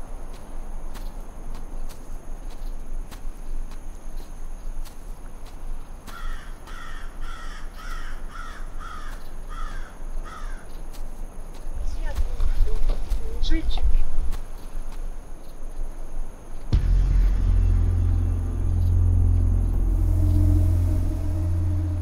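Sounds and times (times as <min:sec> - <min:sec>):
crow cawing: 0:06.1 - 0:10.7
steady low rumble: 0:16.7 - 0:22.0.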